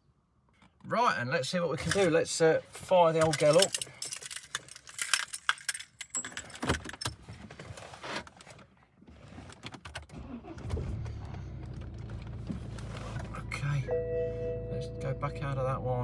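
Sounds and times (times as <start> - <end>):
keys jangling in ignition: 3.2 - 7.2
diesel engine starting and idling: 10.1 - 16.0.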